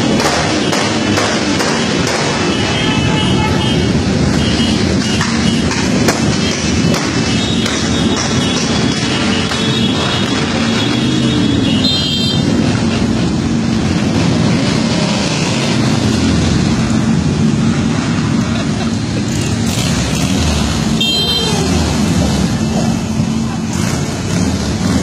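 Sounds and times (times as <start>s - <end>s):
motorcycle engines revving: 0.0s - 25.0s
high horn toots: 2.4s - 5.6s, 7.4s - 12.5s, 21.0s - 21.7s.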